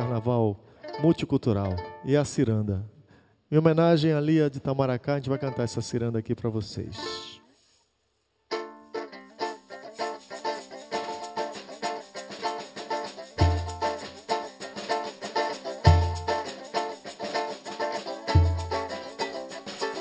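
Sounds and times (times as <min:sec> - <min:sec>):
banjo melody: 0:00.0 - 0:02.4, 0:05.2 - 0:06.1, 0:07.0 - 0:07.5, 0:08.5 - 0:20.0
shaker: 0:07.0 - 0:20.0.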